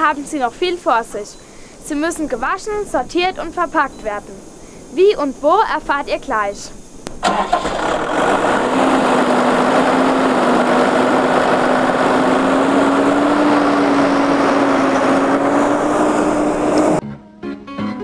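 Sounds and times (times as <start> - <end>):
tractor engine running: 7.0 - 17.0.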